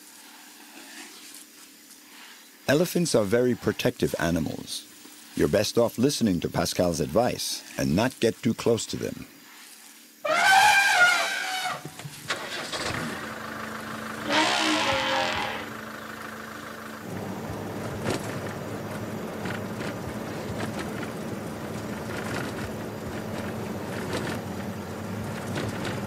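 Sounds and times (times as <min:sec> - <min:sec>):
elephant trumpeting: 0:10.2 - 0:17.0
road noise: 0:10.3 - 0:26.0
vehicle engine running: 0:12.4 - 0:26.0.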